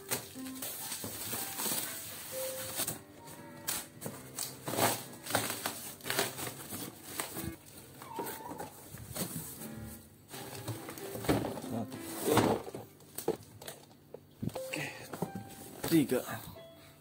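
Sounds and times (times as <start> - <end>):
plastic wrap and cardboard crinkling: 0.0 - 16.3.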